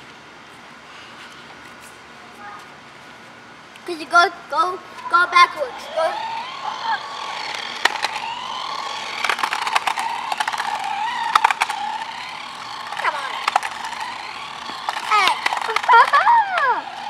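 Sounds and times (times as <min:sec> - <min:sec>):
small electric motor whining: 0:04.0 - 0:17.0
plastic wheels rattling on concrete: 0:05.1 - 0:17.0
sharp clicks: 0:06.4 - 0:17.0.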